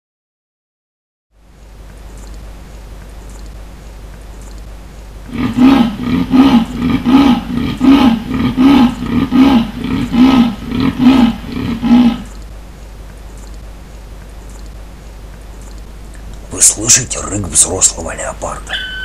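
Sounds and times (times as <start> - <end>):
leopard sawing roar: 5.3 - 12.4.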